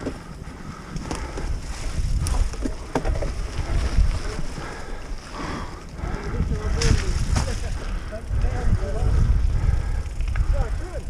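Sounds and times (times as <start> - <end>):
tyres rumbling over rough ground: 0.0 - 11.0
wind buffeting microphone: 0.0 - 11.0.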